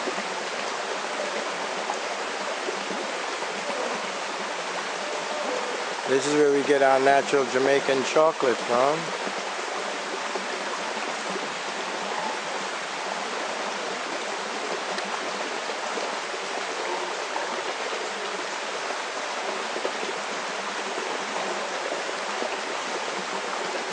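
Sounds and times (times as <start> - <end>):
stream flowing water: 0.0 - 23.9.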